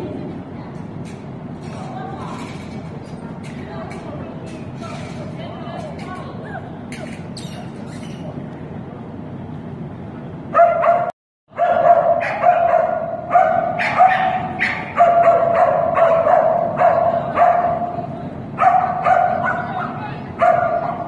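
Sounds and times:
dog barking excitedly: 10.6s - 18.0s, 18.6s - 21.0s.

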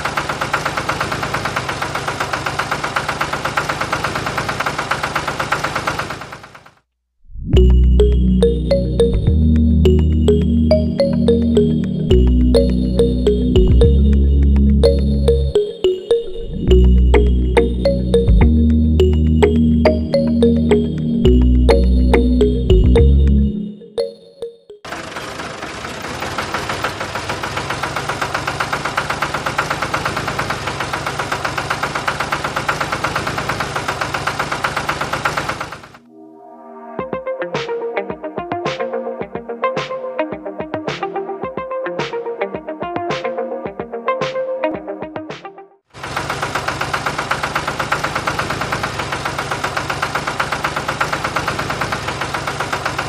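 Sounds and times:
tractor engine chugging: 0.0s - 6.8s, 16.7s - 23.3s, 24.8s - 36.0s, 45.9s - 53.0s.

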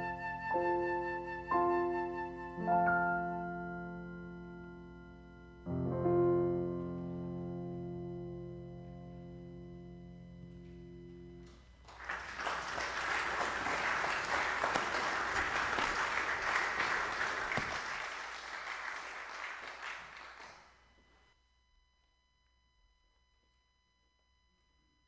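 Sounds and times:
flute and piano piece: 0.0s - 8.4s
congregation applauding: 11.4s - 20.8s.

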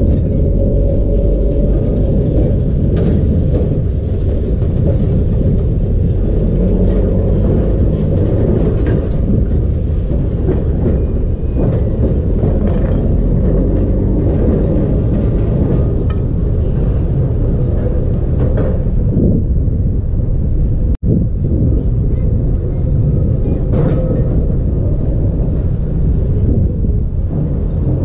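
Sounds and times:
tram rolling over tracks: 0.0s - 28.0s.

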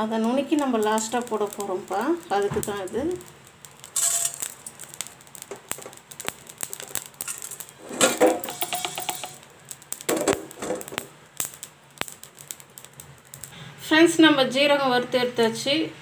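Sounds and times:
seeds crackling in a pan: 0.0s - 15.8s
metallic scraping in a pan: 4.0s - 4.8s, 6.9s - 9.4s.

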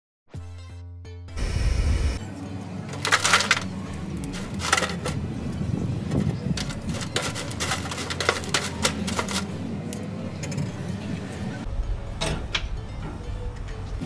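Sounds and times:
metal grill grate clattering: 2.8s - 9.6s.

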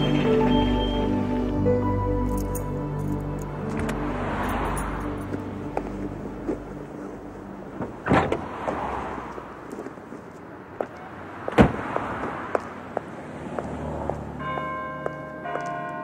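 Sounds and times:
car door slamming shut: 7.8s - 8.5s, 11.5s - 11.9s
car door opening clunk: 7.8s - 8.7s.

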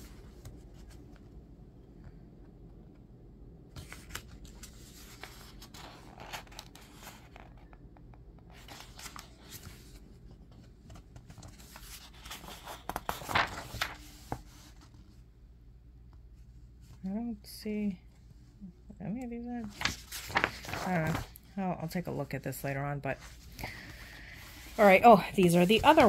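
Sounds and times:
paper pages turning: 3.8s - 7.6s, 8.5s - 15.0s, 19.6s - 21.4s, 23.2s - 26.0s.

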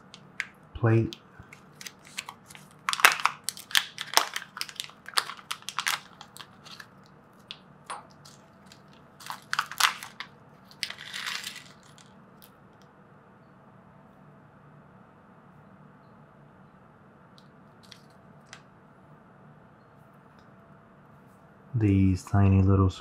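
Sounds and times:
packaging crinkle: 1.4s - 12.5s, 17.8s - 18.6s
small parts clicking and rattling: 1.5s - 7.6s, 8.2s - 12.5s.

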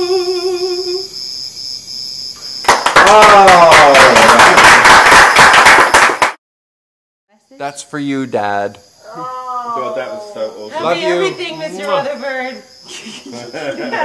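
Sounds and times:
loud clapping: 2.6s - 6.4s
cheering whoop: 2.9s - 4.8s.

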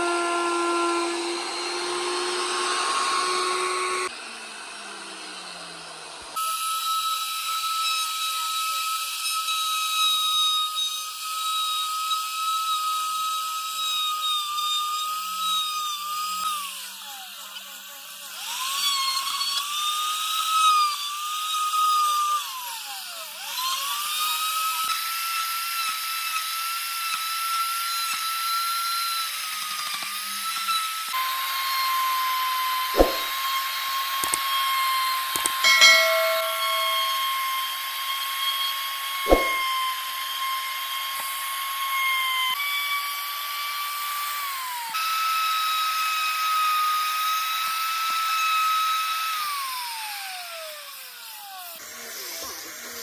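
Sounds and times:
power carving tool whining: 0.0s - 53.0s
sharp knocks: 33.0s - 33.3s, 35.7s - 37.3s, 39.3s - 39.6s.

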